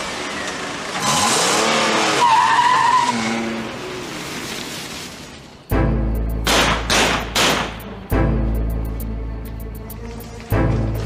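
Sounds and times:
tyres squealing: 0:00.4 - 0:04.0.

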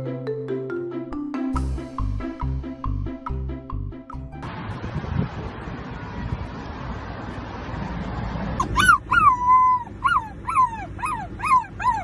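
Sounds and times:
puppy howling and yelping: 0:08.6 - 0:12.0.

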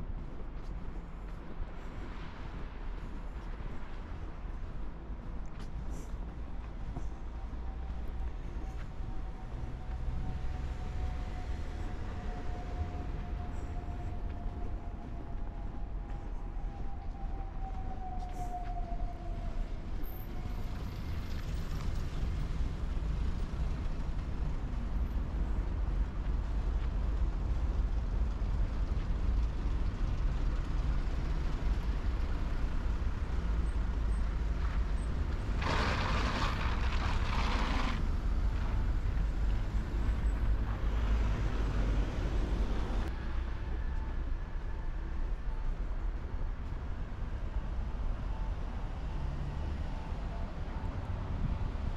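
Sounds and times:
heavy vehicle rumble: 0:20.8 - 0:45.9.

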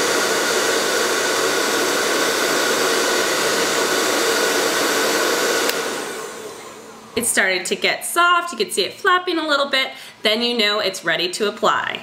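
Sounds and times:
hair dryer blowing: 0:00.0 - 0:07.8.

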